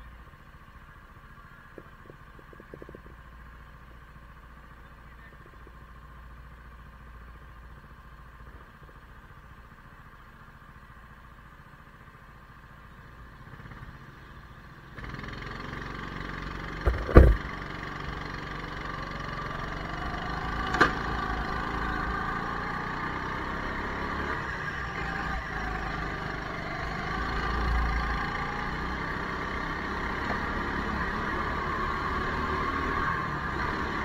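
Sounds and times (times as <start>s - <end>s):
go-karts idling: 0.0s - 22.5s
go-karts pulling away: 14.8s - 34.0s.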